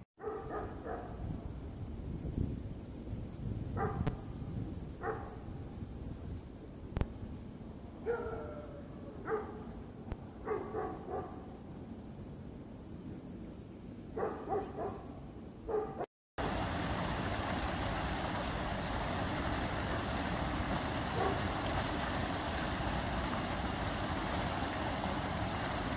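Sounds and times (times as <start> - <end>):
dog barking: 0.2 - 1.2, 3.8 - 4.2, 5.0 - 5.4, 8.0 - 9.7, 10.4 - 11.5, 14.2 - 16.1, 21.1 - 21.5
floodwater rushing from pipe: 16.4 - 25.9.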